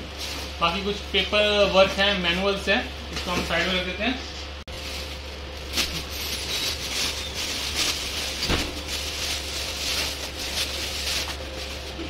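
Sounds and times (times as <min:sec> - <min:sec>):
plastic and paper crinkling: 0:00.0 - 0:02.2, 0:04.7 - 0:12.0
low electrical hum: 0:00.0 - 0:12.0.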